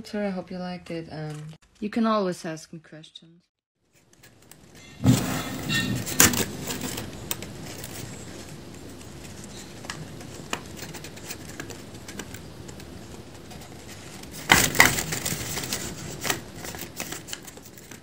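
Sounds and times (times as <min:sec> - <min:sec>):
paper crinkle: 0:03.8 - 0:18.0
paper jaws clacking and rustling: 0:03.9 - 0:18.0.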